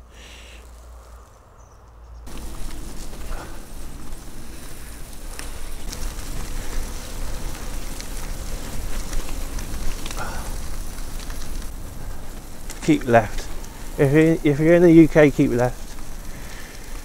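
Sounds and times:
bicycle tyres rolling on mud: 0:00.0 - 0:17.0
grit clicking: 0:02.2 - 0:17.0.

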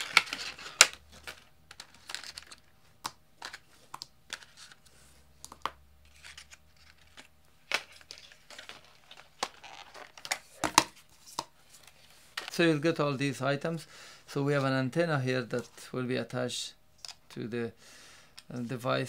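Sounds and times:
plastic packaging crinkling: 0:00.0 - 0:02.7.

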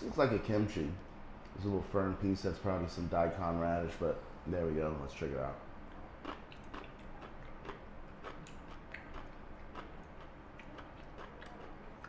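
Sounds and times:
person chewing: 0:05.9 - 0:12.0.

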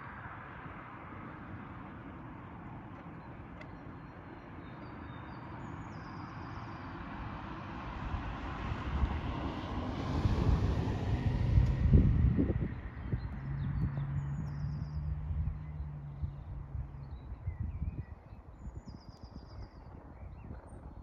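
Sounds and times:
vehicle passing on street: 0:06.9 - 0:17.5.

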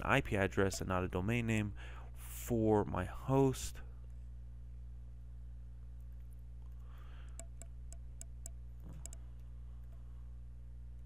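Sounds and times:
steady low hum: 0:00.0 - 0:11.0
keyboard keys clicking: 0:07.4 - 0:09.2.

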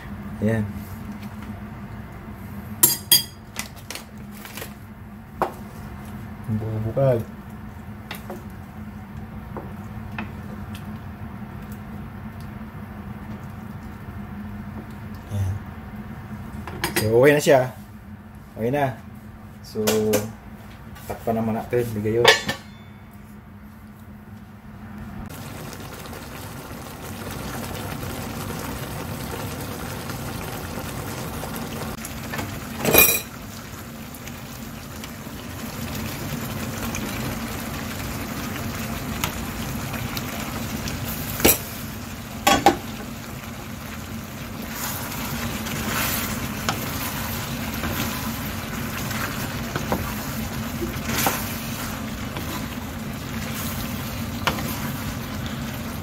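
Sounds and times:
pan and utensils clattering: 0:22.1 - 0:23.0, 0:32.8 - 0:33.4, 0:42.4 - 0:42.9
stew bubbling in a pan: 0:25.3 - 0:56.0.

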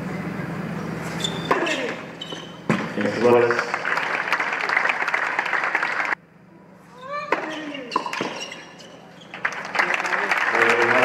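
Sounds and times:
tennis ball strikes: 0:01.4 - 0:02.0
crowd applauding: 0:03.0 - 0:06.2, 0:09.3 - 0:11.0
person calling out: 0:06.9 - 0:07.9.

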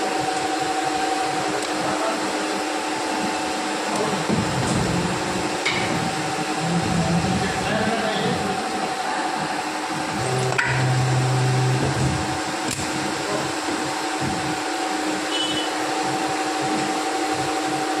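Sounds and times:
hydraulic pump humming: 0:00.0 - 0:18.0
low machine drone: 0:04.0 - 0:15.0.

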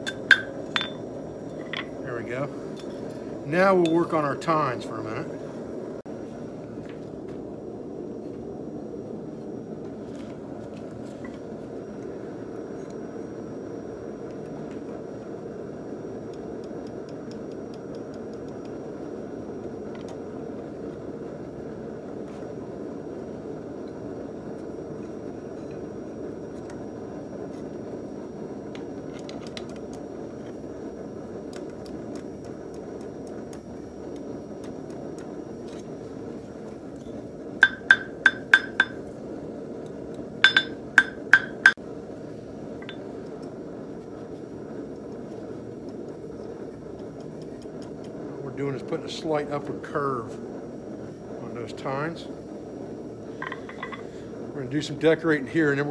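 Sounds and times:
hammer striking steel on anvil: 0:00.0 - 0:01.9, 0:03.8 - 0:04.1, 0:37.6 - 0:39.0, 0:40.4 - 0:41.8
steady low rush: 0:00.0 - 0:14.2, 0:32.3 - 0:55.9.

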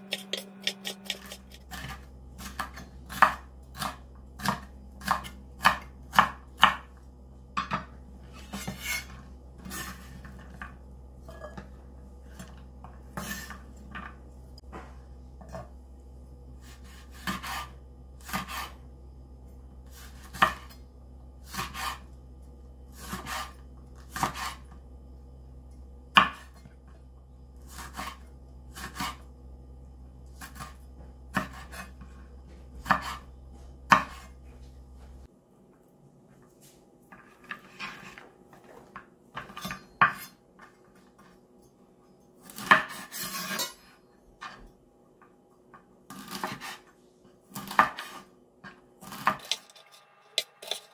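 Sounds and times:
knife chopping on wooden board: 0:00.0 - 0:06.9, 0:26.2 - 0:26.5, 0:30.4 - 0:31.9, 0:32.8 - 0:33.3, 0:33.9 - 0:34.3, 0:46.1 - 0:46.8, 0:47.5 - 0:48.2.

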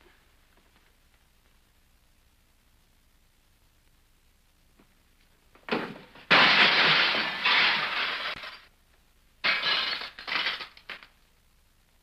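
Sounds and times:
crash with breaking clatter: 0:05.7 - 0:08.7, 0:09.4 - 0:11.1.

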